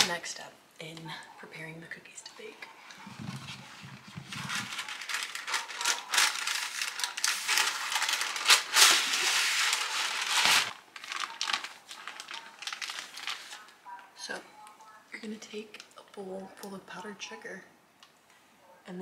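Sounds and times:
parchment paper crinkling: 2.4s - 14.4s.

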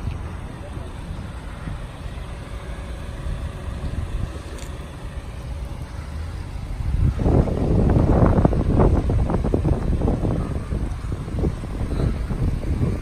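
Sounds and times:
distant road traffic: 0.0s - 13.0s
wind on microphone: 5.4s - 13.0s.

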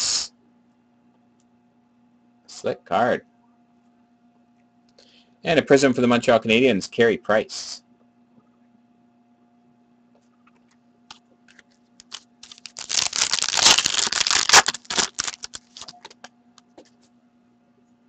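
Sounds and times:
trading cards shuffled: 11.5s - 16.3s.

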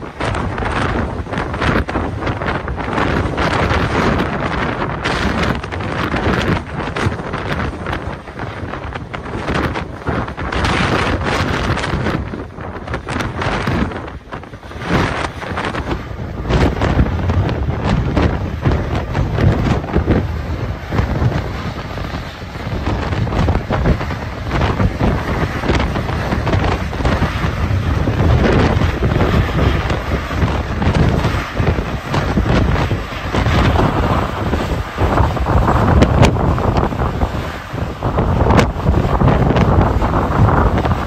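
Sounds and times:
diesel locomotive running: 0.0s - 41.0s
wind buffeting microphone: 0.0s - 41.0s.

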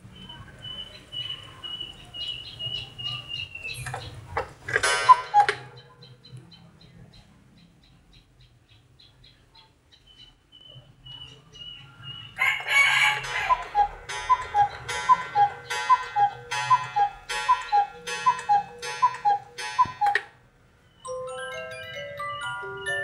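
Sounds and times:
two-note cuckoo call: 4.9s - 5.8s, 12.9s - 20.3s
clock works whirring: 13.0s - 20.2s.

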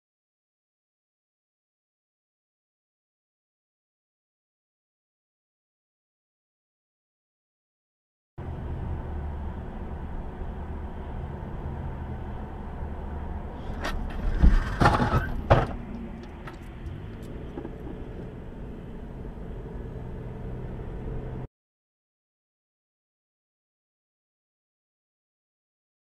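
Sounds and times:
in-car road and engine noise: 8.4s - 21.5s
sharp knocks and clatter: 13.8s - 18.1s.

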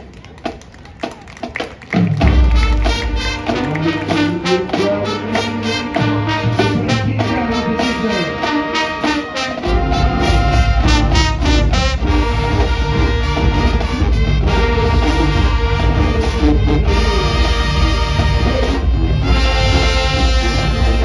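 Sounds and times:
drumline steady beat: 0.0s - 21.0s
marching band playing: 0.0s - 21.0s
brass chords: 2.0s - 21.0s
heavy deep bass: 9.7s - 21.0s.

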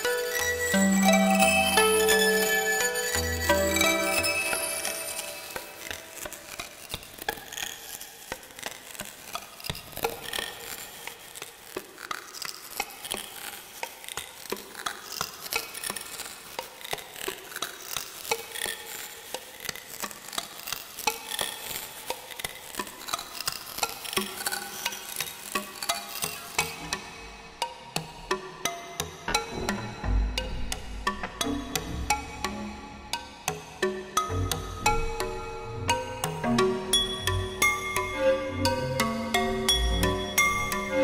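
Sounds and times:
glassy plucked synth pings: 0.3s - 5.9s
crackling grainy wash: 3.9s - 9.6s.

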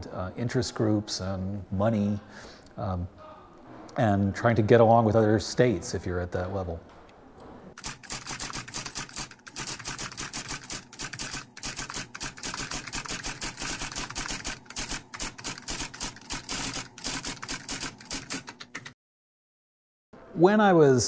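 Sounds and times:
typewriter keys clacking: 7.8s - 19.0s.

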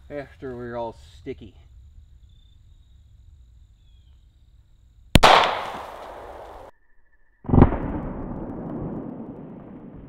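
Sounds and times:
pistol shot with echo: 5.2s - 6.7s.

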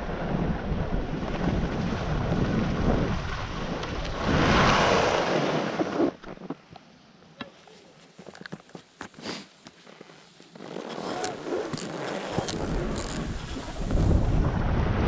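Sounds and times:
wind buffeting microphone: 0.0s - 6.2s, 12.3s - 15.0s.

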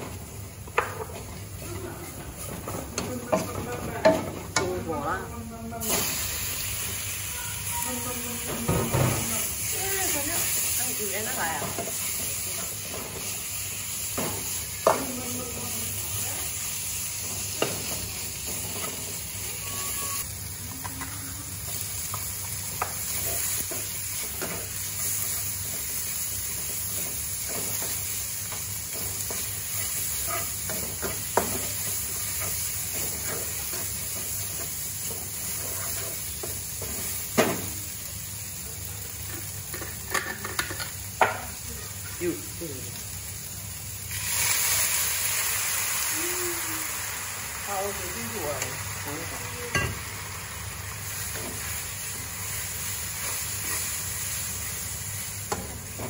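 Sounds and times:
meat sizzling in a wok: 0.0s - 56.0s
spatula stirring and scraping: 22.8s - 37.1s.

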